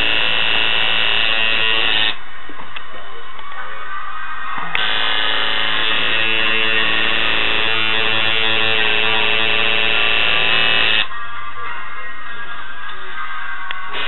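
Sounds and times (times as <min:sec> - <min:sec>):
tattoo machine buzzing: 0:00.0 - 0:02.2, 0:04.8 - 0:11.1.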